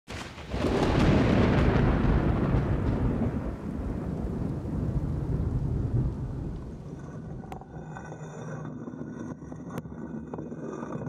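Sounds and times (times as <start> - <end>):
deep rolling rumble: 0.4 - 8.0.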